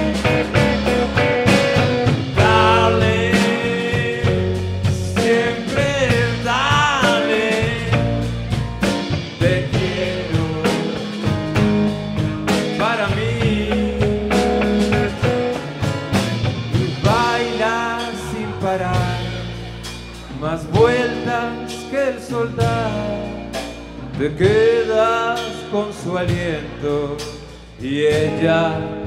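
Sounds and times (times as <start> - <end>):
pitch-bending keyboard lead line: 0.0 - 22.1
live rock blues band: 0.0 - 29.0.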